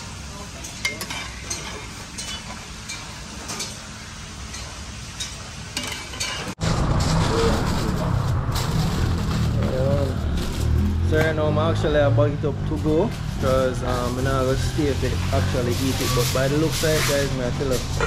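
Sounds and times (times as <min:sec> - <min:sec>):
low rumbling background: 0:06.6 - 0:15.3.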